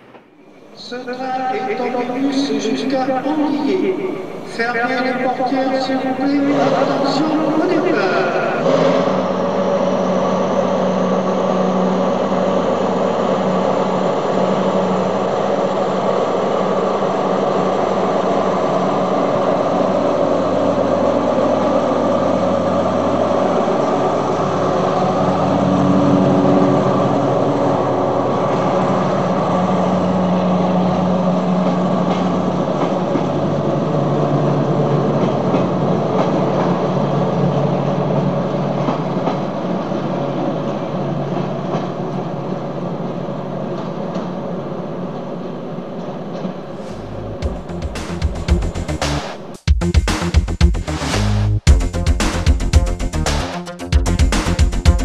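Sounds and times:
simulated diesel railcar engine: 0.0 - 55.0.

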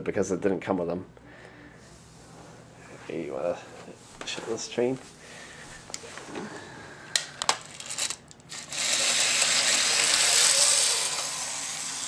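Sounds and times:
toy train motor whirring: 7.6 - 12.0.

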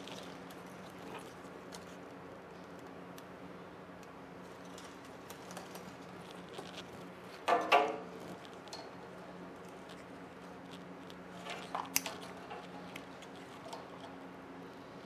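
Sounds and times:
steady low hum: 0.0 - 15.0
ribbon cables clicking and rustling: 4.0 - 9.0, 9.6 - 14.2.

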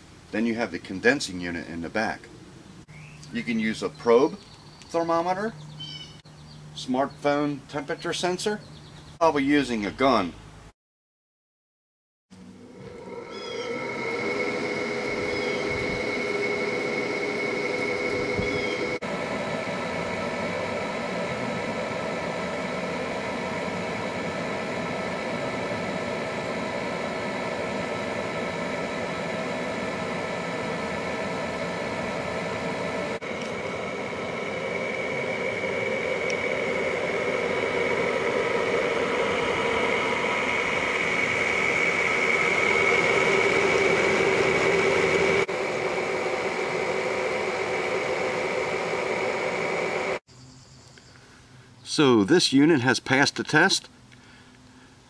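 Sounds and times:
air conditioner fan rushing: 12.4 - 50.2
compressor and fan hum: 12.4 - 50.3, 51.0 - 55.0.

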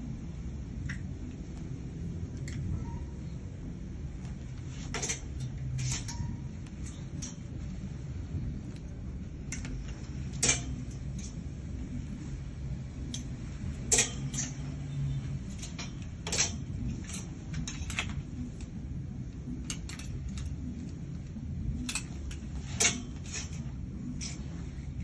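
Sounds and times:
steady low hum: 0.0 - 25.0
hangers clicking on metal rail: 4.6 - 7.8, 8.7 - 12.2, 12.9 - 25.0.

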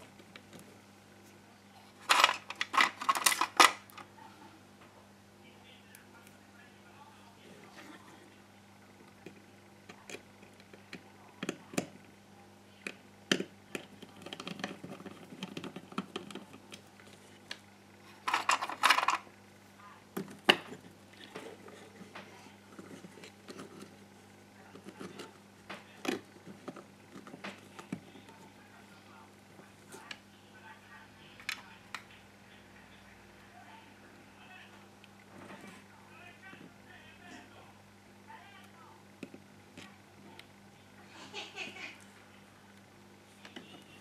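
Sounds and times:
faint low hum: 0.0 - 44.0
clicks and rattles of plastic handling: 2.0 - 4.1, 12.8 - 19.3
scraping and rattling: 18.1 - 19.3.

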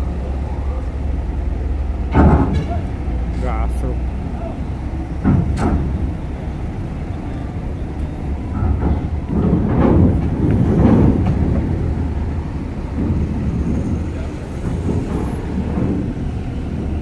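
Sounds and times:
wheels rattling over ramp plates: 0.0 - 3.3, 4.1 - 17.0
car engines running: 0.0 - 17.0
metal ramp clanks: 2.0 - 3.3, 4.3 - 7.4, 8.0 - 12.2.

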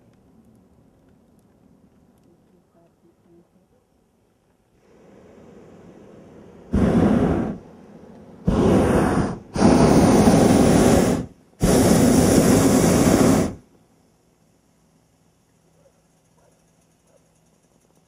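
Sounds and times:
propane burner roaring: 4.8 - 13.7.

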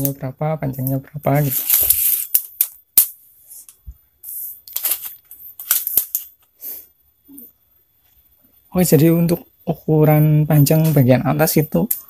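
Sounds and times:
tape measure clicking and rattling: 0.8 - 3.7, 4.7 - 6.4.

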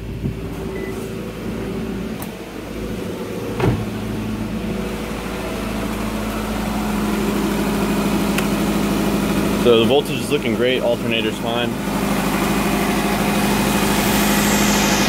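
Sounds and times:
car engine idling: 0.0 - 15.0
thump: 3.6 - 3.9.

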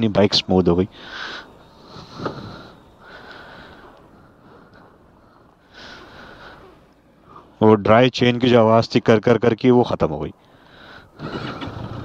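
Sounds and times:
person breathing: 0.9 - 7.6, 10.4 - 11.3.

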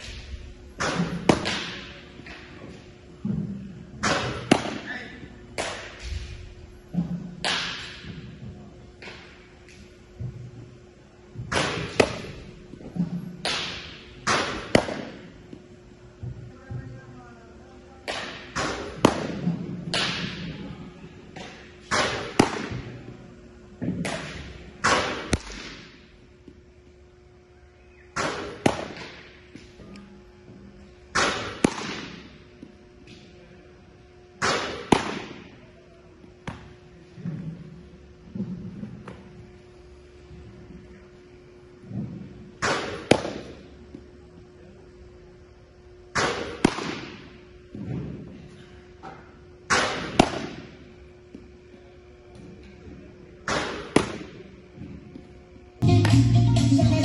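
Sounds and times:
baseballs smacking into a mitt: 0.0 - 8.4, 11.4 - 15.6, 18.0 - 20.6, 21.3 - 23.2, 23.8 - 26.6, 28.1 - 30.0, 31.1 - 33.3, 34.4 - 35.6, 36.4 - 37.6, 41.9 - 44.1, 46.1 - 48.3, 49.0 - 51.5, 52.3 - 55.3
faint steady hum: 0.0 - 57.0.

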